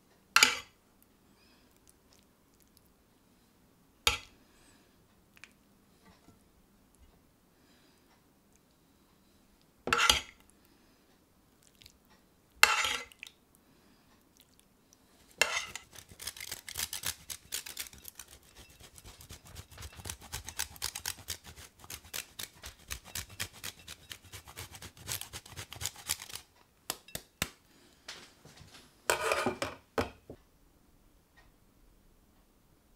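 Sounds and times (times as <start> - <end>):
cheese grater rasping: 15.3 - 26.5.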